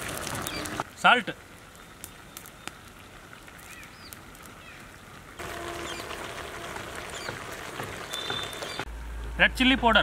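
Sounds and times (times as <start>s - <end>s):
faint bird chirps: 8.1s - 8.9s.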